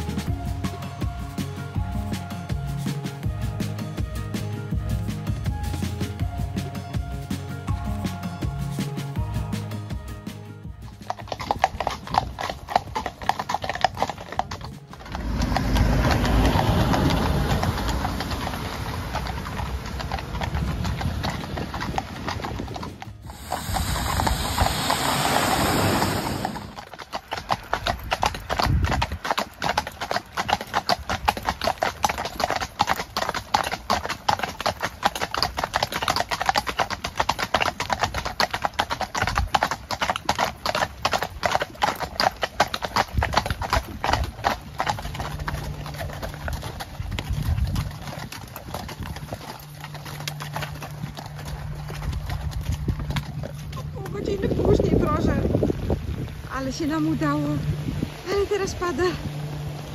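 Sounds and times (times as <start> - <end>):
hooves clip-clopping on asphalt: 0.0 - 59.9
passing vehicle rush: 14.9 - 29.6, 43.8 - 59.9.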